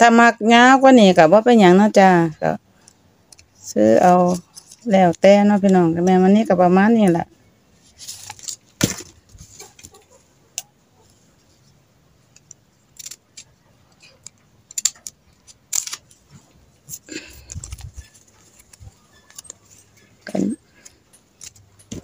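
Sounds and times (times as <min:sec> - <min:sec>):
ribbon crinkling and rustling: 0:02.8 - 0:06.4, 0:07.7 - 0:10.2, 0:12.5 - 0:22.0.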